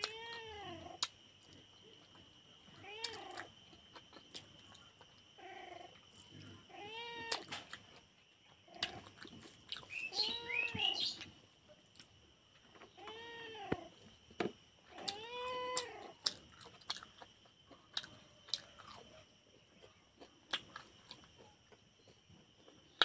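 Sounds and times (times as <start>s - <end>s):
cat meowing: 15.0s - 16.1s.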